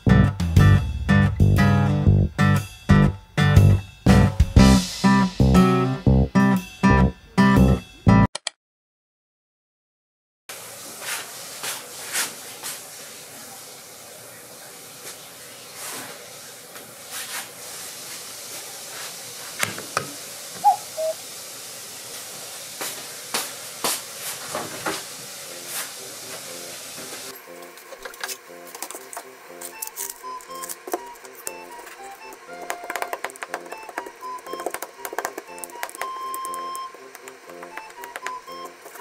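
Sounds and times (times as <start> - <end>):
steady hiss: 10.5 - 27.6.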